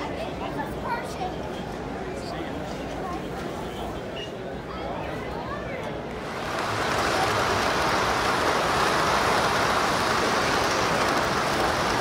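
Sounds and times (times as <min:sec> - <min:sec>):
model train wheels clattering: 0:06.1 - 0:12.0.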